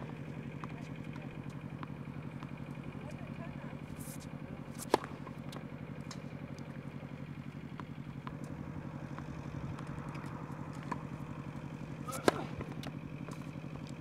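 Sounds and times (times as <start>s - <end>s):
low engine drone: 0.0s - 14.0s
tennis racket striking ball: 3.9s - 6.6s, 7.2s - 14.0s.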